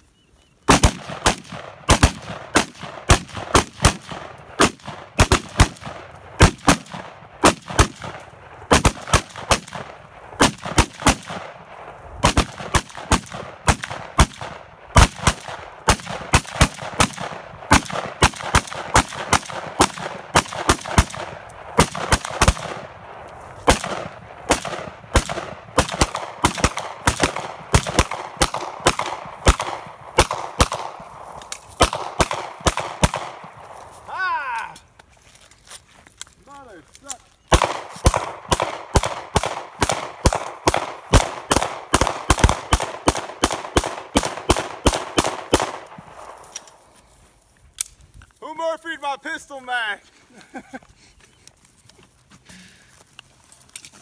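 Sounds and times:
pistol gunshots: 0:00.7 - 0:33.7, 0:37.5 - 0:46.4
rifle gunshots: 0:00.7 - 0:33.7, 0:37.5 - 0:46.4.

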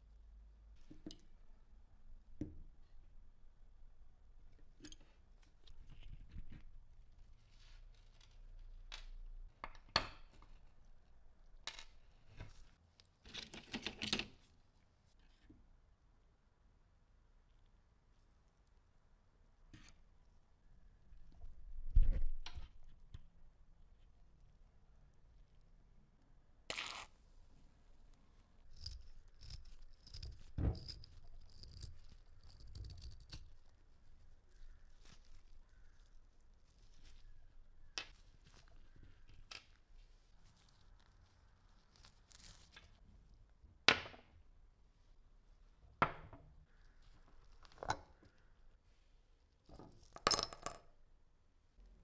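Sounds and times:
metal chain clinking on wood: 0:50.2 - 0:50.8.

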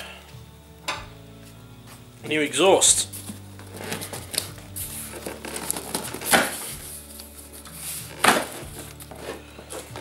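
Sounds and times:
cardboard crackling and rustling: 0:03.2 - 0:10.0
cardboard flap ripping: 0:03.6 - 0:07.0, 0:07.6 - 0:10.0.

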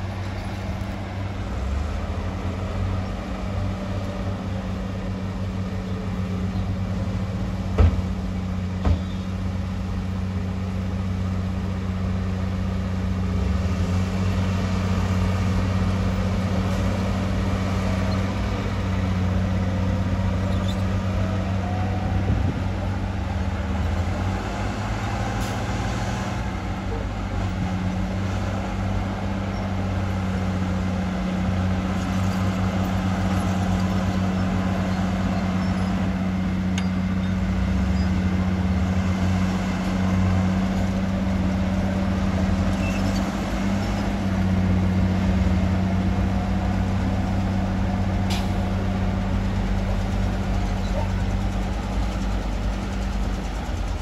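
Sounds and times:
diesel engine droning: 0:00.0 - 0:54.0.

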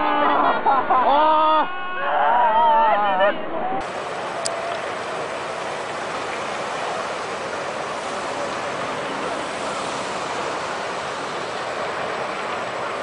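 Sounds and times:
floodwater rushing: 0:03.8 - 0:13.0.

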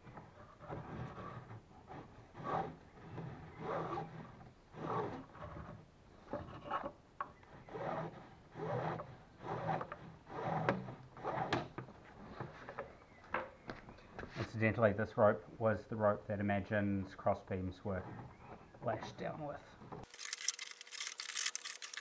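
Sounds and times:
rope rasping over hull: 0:00.0 - 0:06.8, 0:07.4 - 0:12.6.

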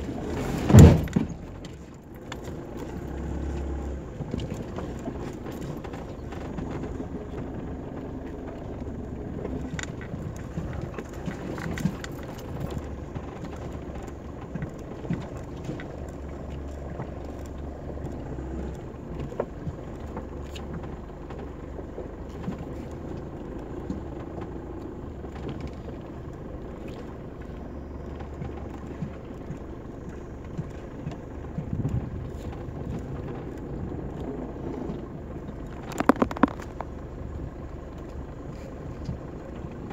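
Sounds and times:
engine droning: 0:00.0 - 0:39.9
knocks and rattles: 0:35.7 - 0:37.0.

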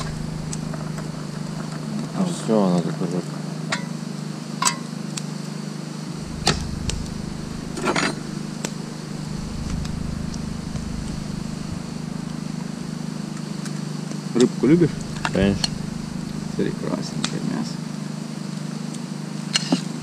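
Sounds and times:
portable generator humming: 0:00.0 - 0:02.7, 0:06.1 - 0:13.6, 0:14.4 - 0:18.1.

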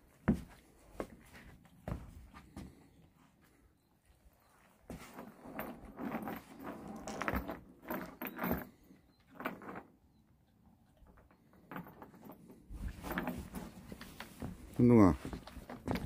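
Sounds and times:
metal chain rattling on wooden deck: 0:04.9 - 0:16.0.

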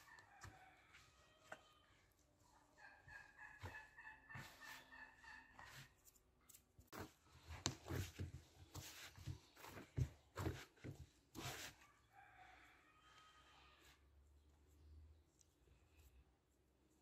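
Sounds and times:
dough squelching and slapping: 0:03.0 - 0:11.9.

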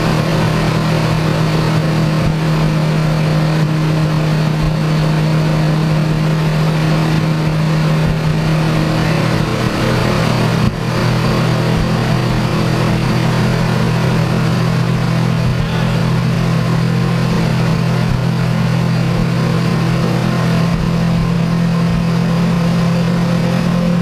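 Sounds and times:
car engine droning on dyno: 0:00.0 - 0:24.0.

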